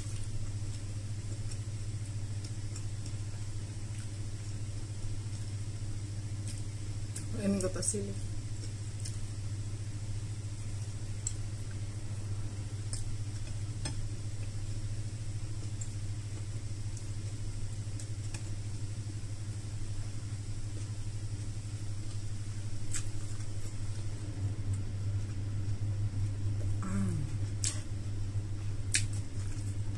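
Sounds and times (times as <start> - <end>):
person eating and chewing: 0.0 - 4.6, 8.4 - 9.4, 10.6 - 14.8, 21.8 - 29.9
steady low hum: 0.0 - 29.9.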